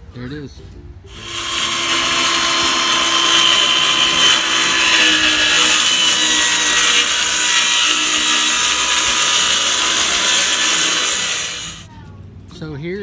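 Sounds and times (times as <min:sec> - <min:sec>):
power tool whirring: 0:01.1 - 0:11.9.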